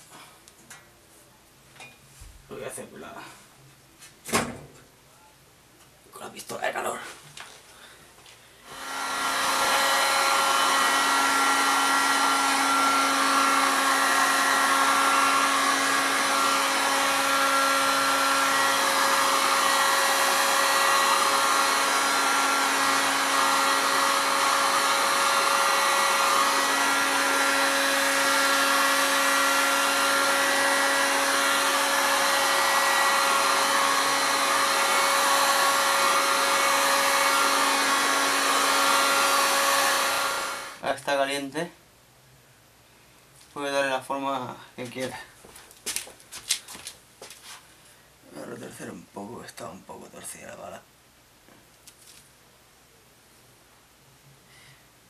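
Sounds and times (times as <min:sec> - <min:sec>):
heat gun fan rushing: 0:08.6 - 0:40.8.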